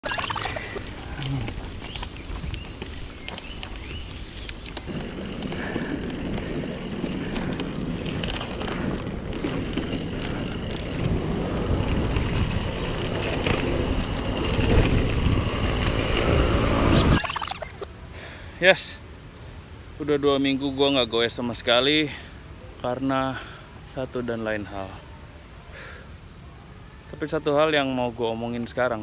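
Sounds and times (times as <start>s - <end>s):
thin high whine: 0.0s - 5.9s, 9.4s - 17.9s
bike tyre rumble: 0.5s - 17.2s
wind rush on microphone: 4.9s - 17.1s.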